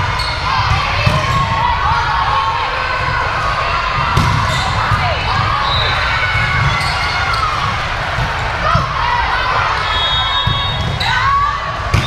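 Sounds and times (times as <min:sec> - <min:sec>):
crowd chatter: 0:00.0 - 0:12.0
sneakers squeaking on floor: 0:00.1 - 0:00.5, 0:04.2 - 0:07.6, 0:09.8 - 0:11.2
volleyball being struck: 0:04.1 - 0:05.2.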